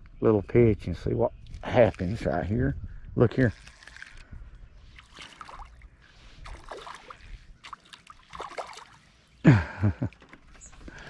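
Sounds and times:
fish splashing in water: 3.5s - 4.2s, 5.0s - 9.2s.

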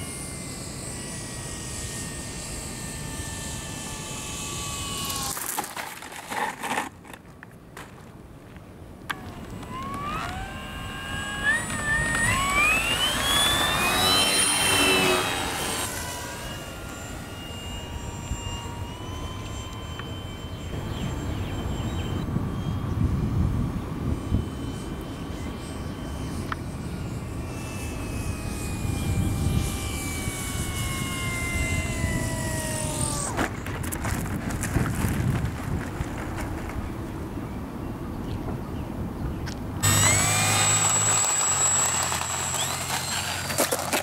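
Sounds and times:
model plane motor whine: 0.0s - 7.2s, 9.0s - 38.2s, 39.4s - 44.0s
wind rumble on microphone: 20.7s - 27.2s, 27.9s - 40.0s.

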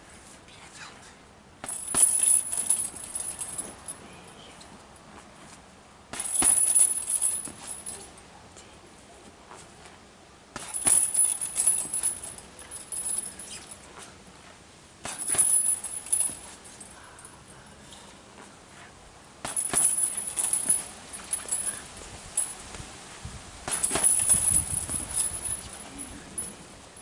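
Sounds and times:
chain jingling and rattling: 1.6s - 4.4s, 6.1s - 8.2s, 10.6s - 14.0s, 15.1s - 17.3s, 19.4s - 22.6s, 23.6s - 27.0s
punches on heavy bag: 6.1s - 7.9s, 10.6s - 12.2s, 15.0s - 16.4s, 19.4s - 21.7s, 23.6s - 25.5s.

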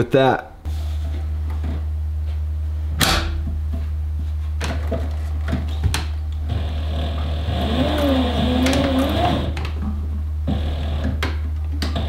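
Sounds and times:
steady low hum: 0.0s - 12.0s
sewing machine motor running: 6.4s - 9.6s, 10.5s - 11.2s.

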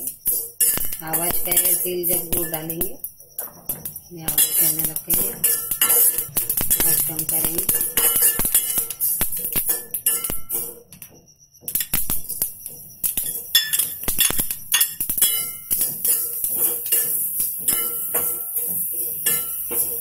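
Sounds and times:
seeds crackling: 0.0s - 10.7s
metal spatula scraping steel pan: 4.3s - 10.7s, 13.2s - 20.0s.

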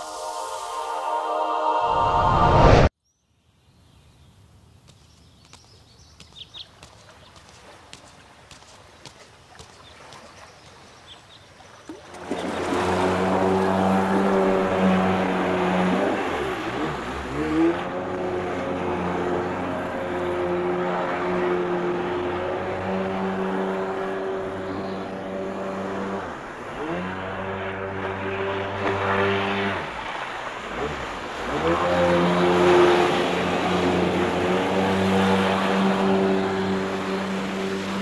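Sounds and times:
jet ski engine revving: 12.1s - 38.0s.

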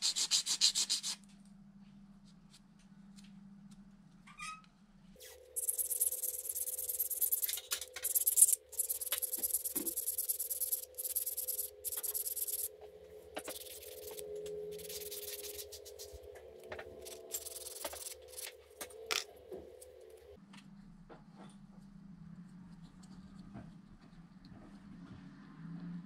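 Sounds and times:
steady low hum: 4.8s - 24.8s
rubbing on small hard part: 5.6s - 12.7s, 13.4s - 16.2s.

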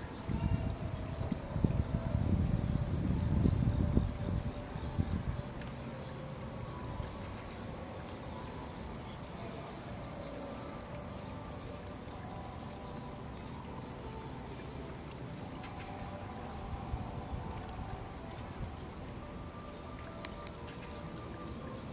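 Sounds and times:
insects calling: 0.0s - 21.9s
sharp clicks: 20.1s - 20.9s.

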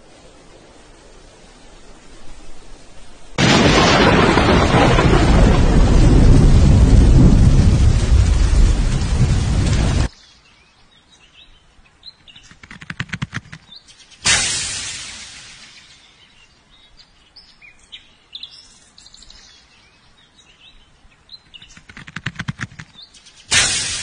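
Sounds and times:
crackling ticks: 21.4s - 23.4s.

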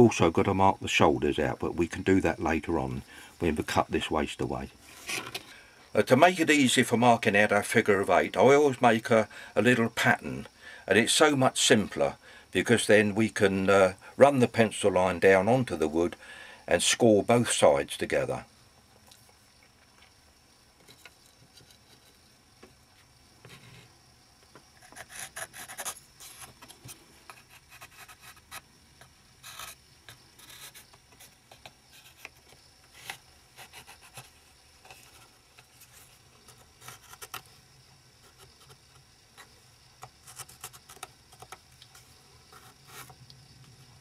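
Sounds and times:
pencil scratching on wood: 24.8s - 26.6s, 27.2s - 37.4s, 42.5s - 43.2s.

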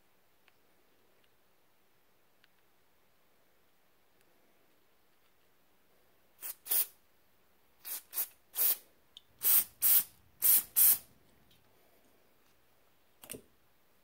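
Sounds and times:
aerosol spray hissing blasts: 6.4s - 6.9s, 7.8s - 8.8s, 9.4s - 11.1s.

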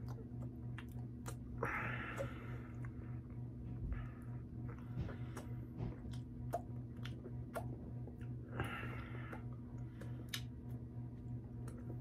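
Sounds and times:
wet mouth clicks: 0.0s - 1.6s, 6.1s - 8.3s, 10.0s - 10.6s
chewing a sandwich: 0.0s - 12.0s
steady low hum: 0.0s - 12.0s.

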